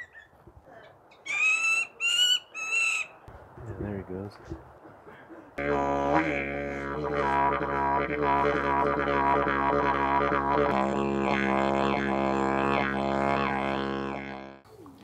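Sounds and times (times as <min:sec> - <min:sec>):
low droning note: 0:05.6 - 0:14.6.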